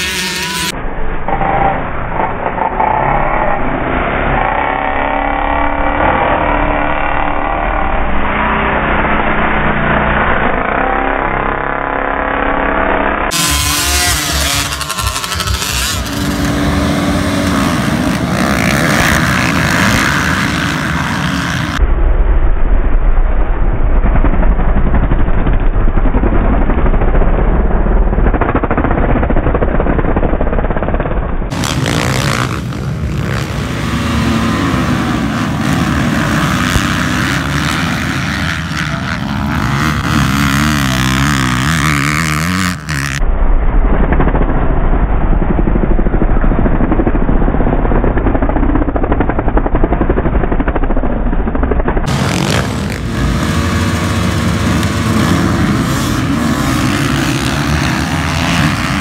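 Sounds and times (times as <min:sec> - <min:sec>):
dirt bike engines revving: 0:00.0 - 0:21.9, 0:31.5 - 0:43.3, 0:52.0 - 0:59.0.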